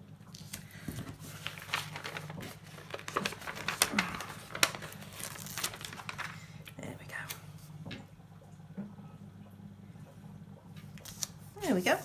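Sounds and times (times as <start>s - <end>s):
paper sheets rustling: 0.4s - 6.6s.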